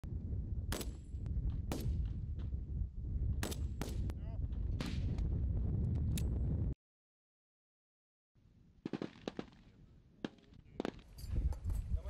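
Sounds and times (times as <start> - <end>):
rifle shots: 8.8 - 9.6
distant gunshots: 8.8 - 11.1.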